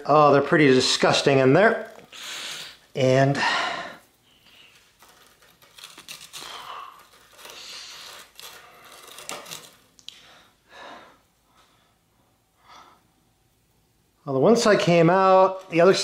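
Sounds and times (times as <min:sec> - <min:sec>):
metallic clicks and scrapes: 0:04.8 - 0:09.8.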